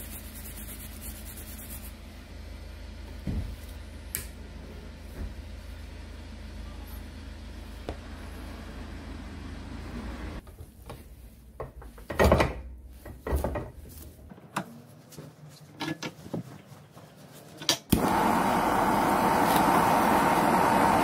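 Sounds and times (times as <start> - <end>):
gas torch hissing: 18.0 - 21.0.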